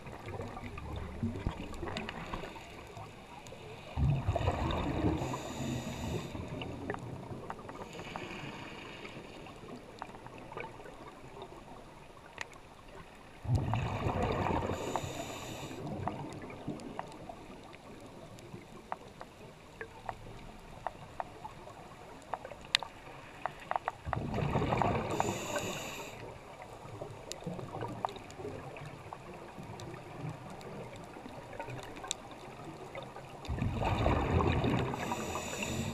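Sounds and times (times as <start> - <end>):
faint clicks: 0.2 - 3.7, 12.3 - 13.7, 14.6 - 24.3, 27.0 - 33.6
diver exhaling bubbles: 4.0 - 6.6, 33.5 - 35.9
regulator valve hissing: 35.0 - 35.9.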